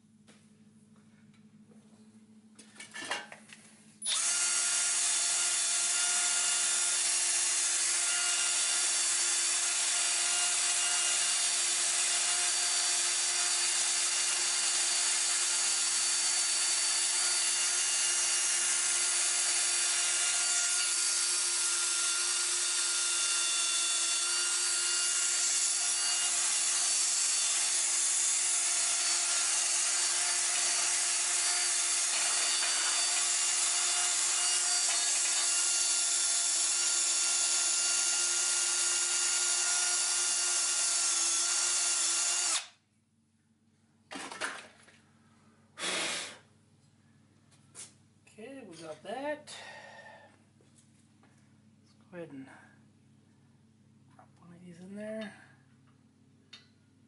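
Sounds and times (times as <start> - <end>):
power drill with wire brush on metal: 4.0 - 42.8.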